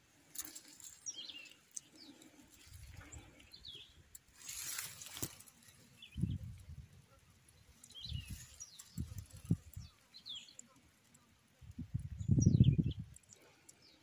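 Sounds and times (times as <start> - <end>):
rustling and scraping of soil: 0.0 - 12.2
bird chirping: 0.8 - 4.0, 7.5 - 10.8, 11.9 - 14.0.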